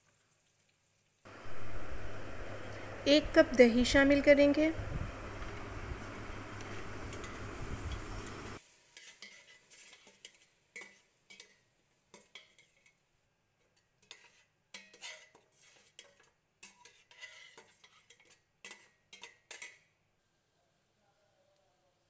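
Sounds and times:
metal spoon scraping a pot: 0:05.4 - 0:08.2, 0:09.0 - 0:13.0, 0:13.6 - 0:19.8.

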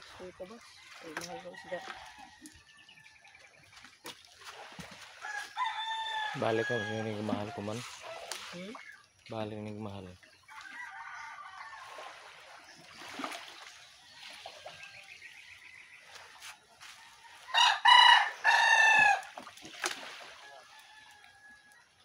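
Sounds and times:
rooster crowing: 0:05.2 - 0:07.8, 0:10.5 - 0:12.0, 0:17.1 - 0:19.3, 0:20.4 - 0:21.9.

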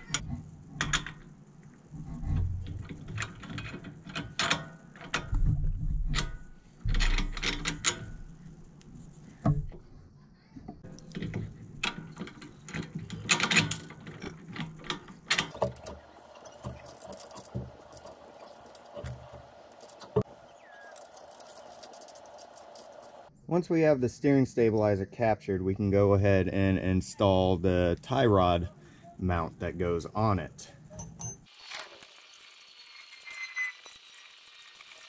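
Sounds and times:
metal clinks and knocks: 0:10.8 - 0:23.3, 0:30.9 - 0:31.5.

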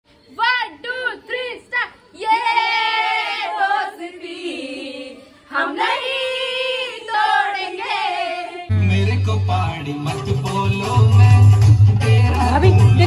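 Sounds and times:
women singing unaccompanied: 0:02.1 - 0:08.7.

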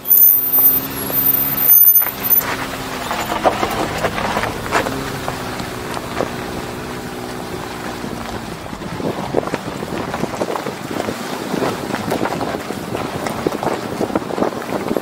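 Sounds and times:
engine droning: 0:00.0 - 0:14.3
tyres on loose gravel: 0:00.0 - 0:15.0
wind rushing over microphone: 0:01.5 - 0:15.0.

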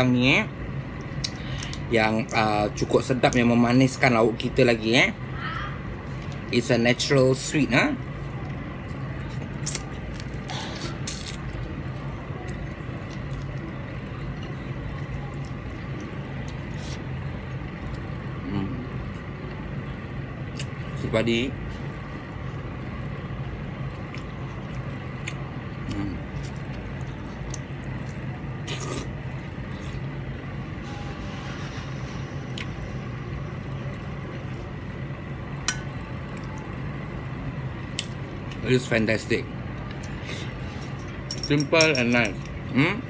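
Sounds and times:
low machine hum: 0:00.0 - 0:43.0
small clicks of mixing food: 0:23.9 - 0:28.3
quiet chewing: 0:23.9 - 0:29.1
high whine: 0:25.6 - 0:43.0.

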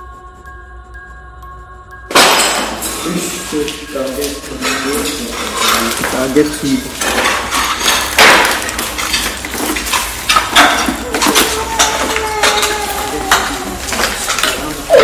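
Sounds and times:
broken tile clattering on hard floor: 0:04.6 - 0:14.8
person crying out: 0:11.0 - 0:14.0.

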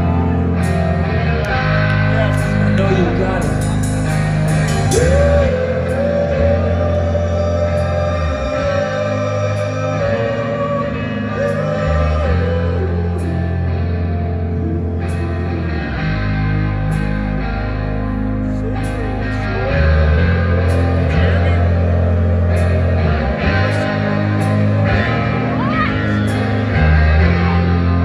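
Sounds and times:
electric guitars: 0:00.0 - 0:28.0
sustained bass notes: 0:00.0 - 0:28.0
person singing: 0:04.5 - 0:16.2.

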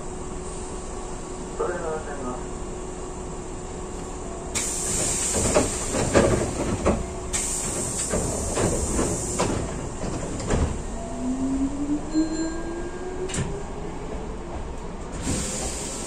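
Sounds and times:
train knocks and clunks: 0:03.8 - 0:16.0
train compressed air hissing: 0:04.5 - 0:06.2, 0:07.3 - 0:09.6, 0:15.2 - 0:16.0.

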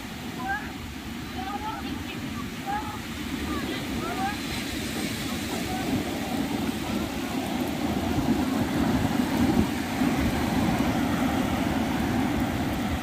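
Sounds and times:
surf: 0:00.0 - 0:13.0
wind buffeting microphone: 0:00.0 - 0:13.0.

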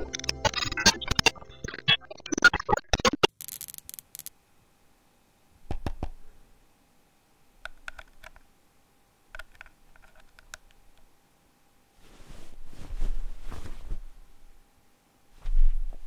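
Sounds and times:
faint steady hum: 0:00.0 - 0:16.0
plastic headset clicks and knocks: 0:07.7 - 0:08.5, 0:09.4 - 0:10.8.

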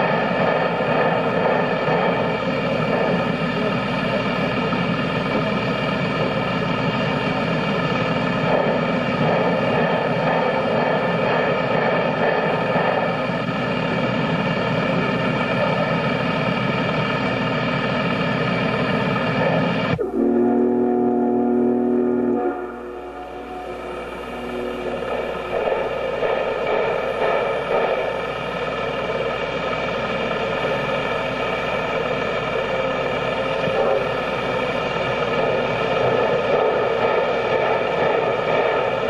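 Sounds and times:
steam locomotive running: 0:00.0 - 0:39.0
steam whistle blowing a chord: 0:19.9 - 0:26.0.

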